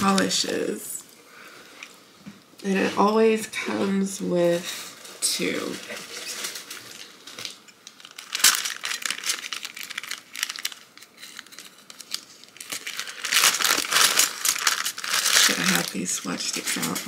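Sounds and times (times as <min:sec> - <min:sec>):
plastic packaging crinkling: 0:00.0 - 0:00.8, 0:04.4 - 0:17.0.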